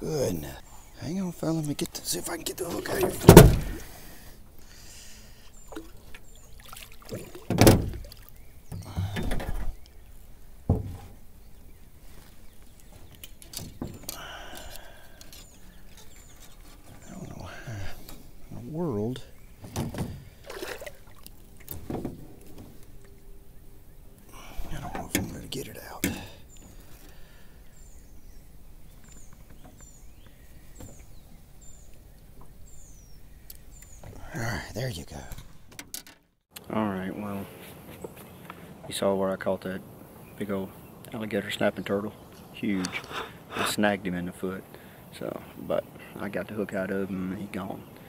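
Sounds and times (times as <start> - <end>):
loud thump: 3.2 - 3.8
scraping rustle: 12.0 - 17.4
small bird chirping: 23.4 - 35.0.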